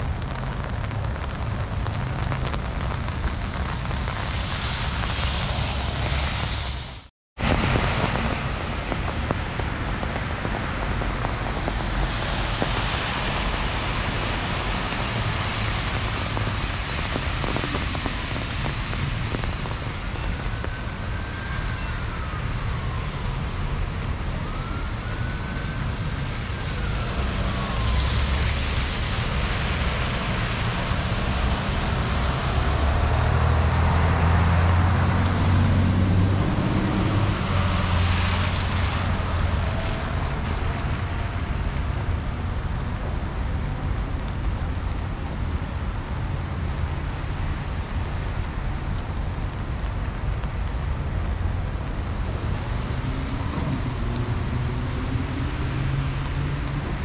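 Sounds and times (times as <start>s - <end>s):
city traffic: 0.0s - 57.0s
heavy rain hissing: 0.0s - 57.0s
distant siren wailing: 10.5s - 41.6s, 52.4s - 57.0s.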